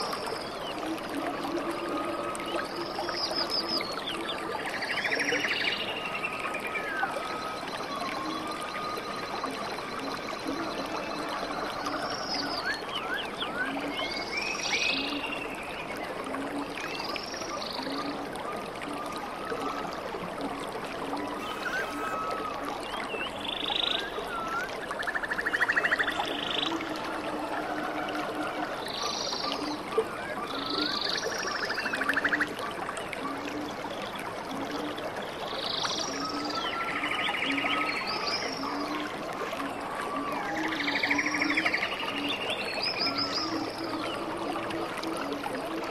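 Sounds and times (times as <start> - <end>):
water running over cascades: 0.0 - 45.9
animal calls: 21.4 - 22.5
high whistled bird calls: 21.4 - 25.2.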